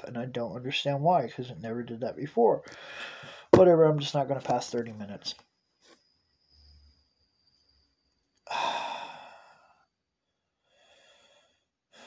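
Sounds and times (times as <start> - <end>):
quiet breath: 2.6 - 3.5, 8.4 - 12.0
man sighing heavily: 8.4 - 9.8.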